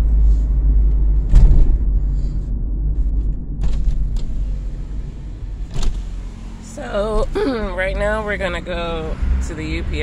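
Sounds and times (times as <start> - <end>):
low rumble inside a car: 0.0 - 10.0
thump: 1.2 - 2.0.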